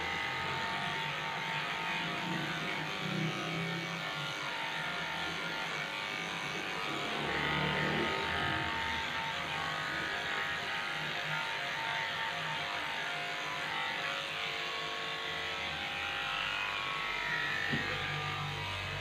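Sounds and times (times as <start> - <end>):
electric clipper shaving fur: 0.0 - 19.0.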